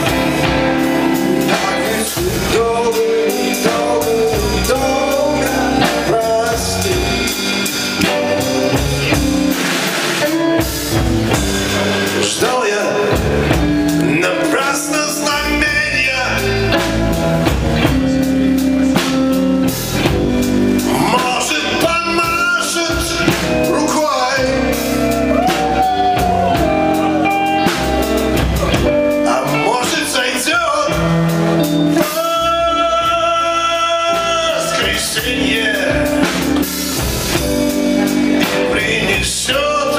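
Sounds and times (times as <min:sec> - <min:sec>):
man singing into a microphone: 0:00.0 - 0:09.4, 0:11.6 - 0:17.0, 0:20.8 - 0:27.8, 0:28.6 - 0:36.7, 0:37.9 - 0:39.9
live band with guitars and drums: 0:00.0 - 0:39.9.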